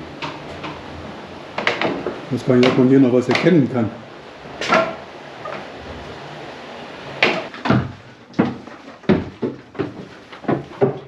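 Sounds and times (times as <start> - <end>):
footsteps on wooden floorboards: 7.6 - 11.0.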